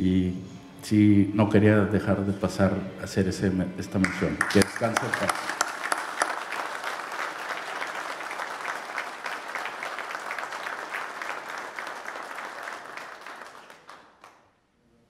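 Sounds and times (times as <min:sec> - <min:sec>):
audience applauding: 0:04.0 - 0:14.4.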